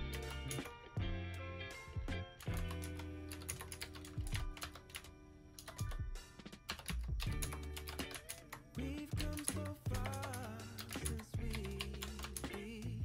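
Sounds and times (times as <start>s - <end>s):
soft background music: 0.0s - 13.0s
mechanical keyboard clacking: 2.4s - 5.9s, 6.7s - 8.6s, 9.2s - 12.8s.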